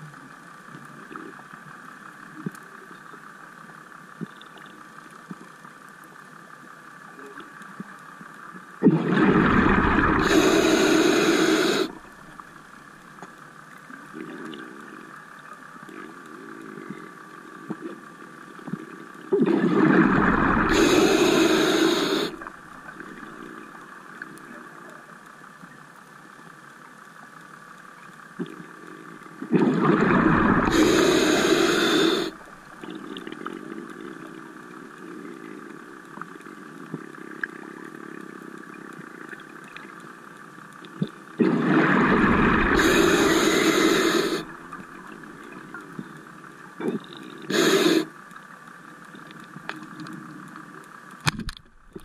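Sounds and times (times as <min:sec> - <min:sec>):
quiet steady hiss: 0:00.0 - 0:52.0
exhaled bubble bursts: 0:08.8 - 0:12.1, 0:19.4 - 0:23.2, 0:29.5 - 0:33.3, 0:41.4 - 0:45.3.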